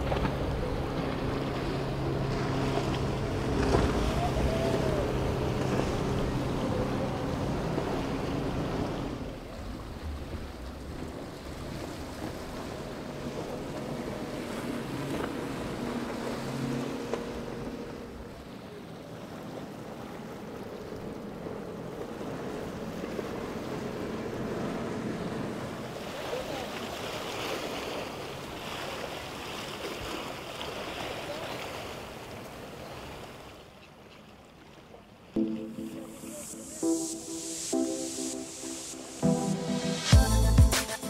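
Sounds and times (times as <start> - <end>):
powerboat engines droning: 0.0 - 28.4
hull spray and waves: 0.0 - 41.0.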